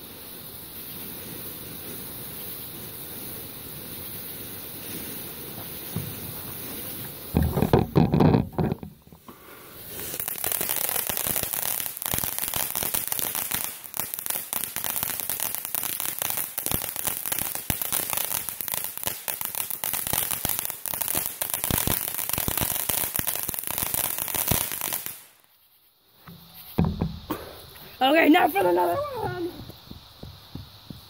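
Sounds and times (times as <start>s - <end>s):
firework fountain hissing and crackling: 0.0s - 31.0s.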